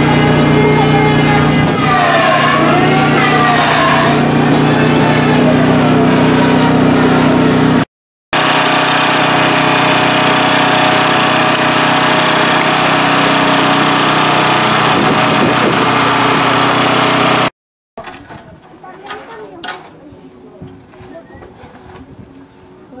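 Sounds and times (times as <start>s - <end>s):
small engine running: 0.0s - 7.8s, 8.4s - 17.5s.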